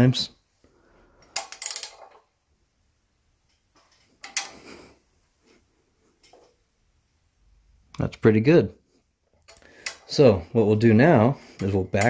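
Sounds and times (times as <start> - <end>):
metallic clicking and scraping: 1.2 - 2.2, 3.5 - 4.7, 9.3 - 10.2.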